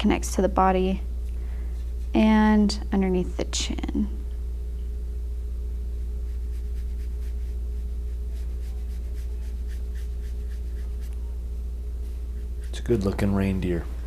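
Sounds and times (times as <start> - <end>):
steady low hum: 0.0 - 14.0
brush swishes on paper: 1.8 - 2.2, 6.2 - 11.2, 12.0 - 13.3.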